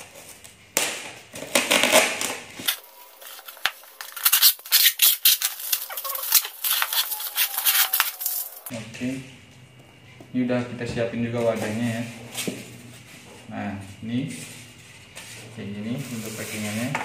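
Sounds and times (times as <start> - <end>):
tape peeling off styrofoam: 1.6 - 8.7
blade scraping packing tape: 2.6 - 8.7.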